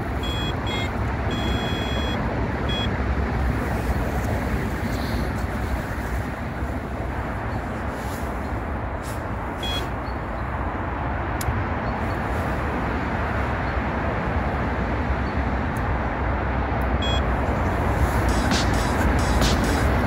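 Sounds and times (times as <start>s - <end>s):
road traffic hum: 0.0s - 20.0s
faint beeps: 0.2s - 2.9s, 9.6s - 10.4s, 17.0s - 17.3s.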